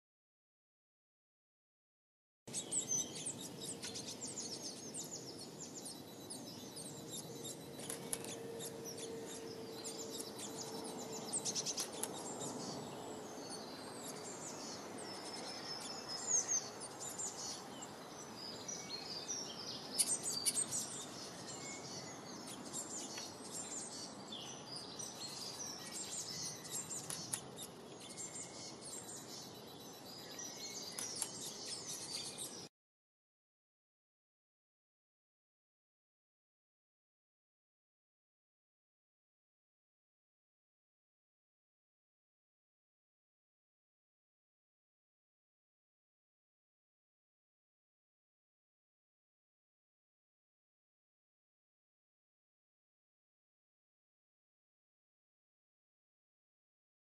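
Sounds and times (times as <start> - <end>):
songbirds chirping: 2.5 - 32.7.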